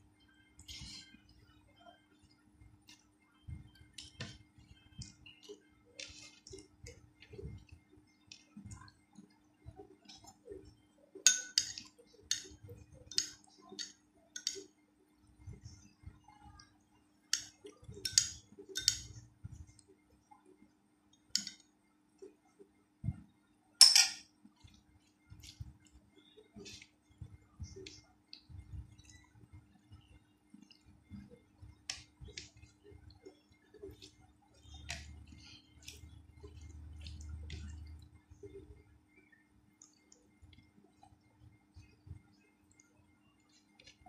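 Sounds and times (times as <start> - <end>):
fingers squishing rice: 0.6 - 10.7, 24.5 - 38.8
metal spoon clinking on dishes: 11.3 - 14.7, 17.4 - 19.2, 23.8 - 24.3
chewing: 32.0 - 38.6.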